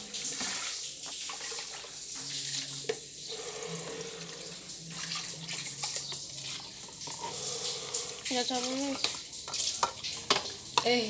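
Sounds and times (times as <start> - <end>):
liquid splashing and trickling: 0.0 - 11.0
metal spoon stirring in a sieve: 3.3 - 11.0.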